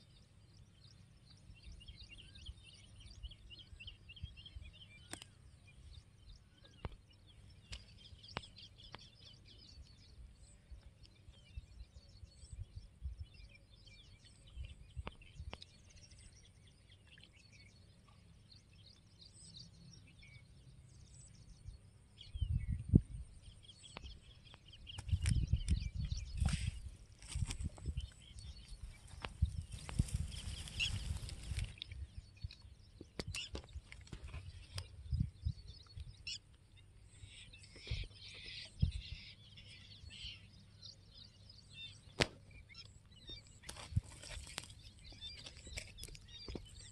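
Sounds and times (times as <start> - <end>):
small birds chirping: 0.0 - 46.9
rustle: 25.0 - 32.1, 42.1 - 46.9.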